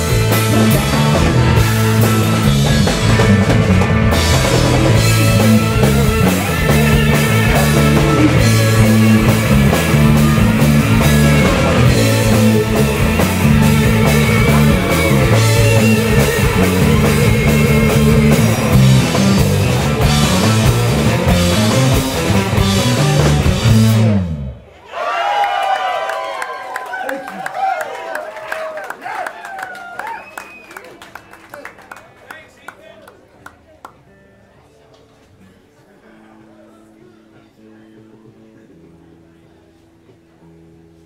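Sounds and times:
drum kit: 0:00.0 - 0:24.6
electric guitars: 0:00.0 - 0:24.7
bass guitar: 0:00.0 - 0:24.8.

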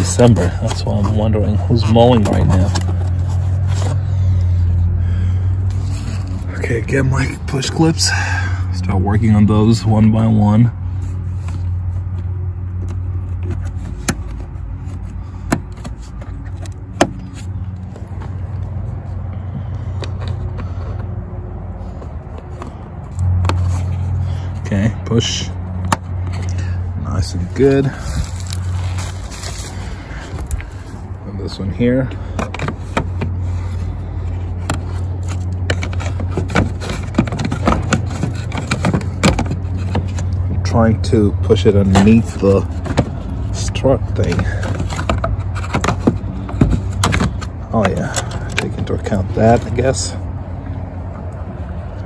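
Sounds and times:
plastic clicks knocks and scrapes: 0:34.6 - 0:40.5, 0:44.2 - 0:49.8.

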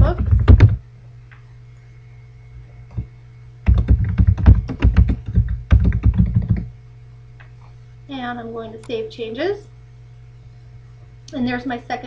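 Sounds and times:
computer keyboard typing: 0:00.0 - 0:00.8, 0:03.7 - 0:06.7.

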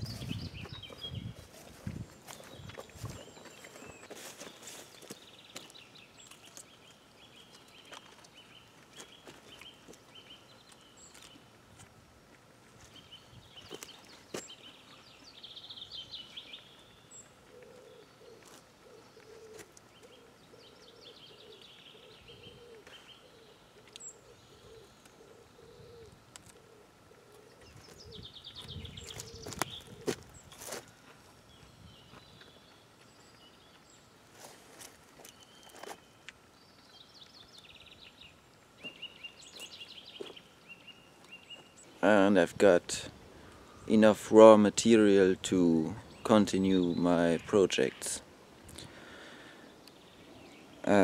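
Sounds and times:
birds chirping trills: 0:00.0 - 0:11.6, 0:12.6 - 0:51.0
low bird call: 0:12.9 - 0:30.9.

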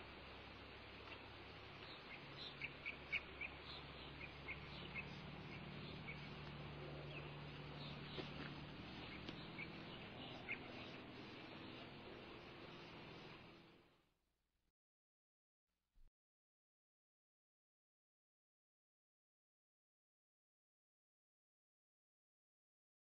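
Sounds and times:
steady hiss and low hum: 0:00.0 - 0:14.0.

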